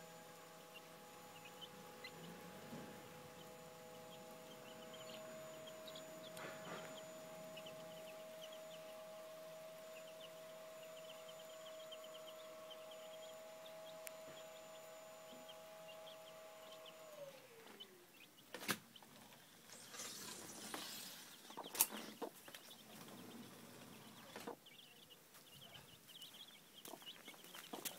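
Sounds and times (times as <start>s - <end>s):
machine hum gliding down: 0.0s - 18.3s
chicks peeping softly: 0.0s - 27.9s.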